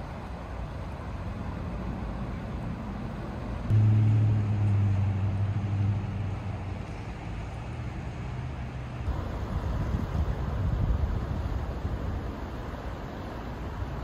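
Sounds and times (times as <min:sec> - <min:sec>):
low engine hum: 0:00.0 - 0:14.0
wind buffeting the microphone: 0:09.1 - 0:12.8.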